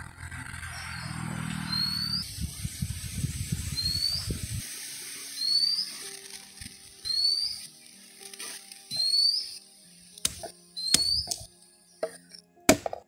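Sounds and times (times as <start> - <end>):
short rising chirp: 0.0 - 2.9, 3.5 - 4.6, 5.2 - 6.2, 7.0 - 7.8, 8.5 - 9.6.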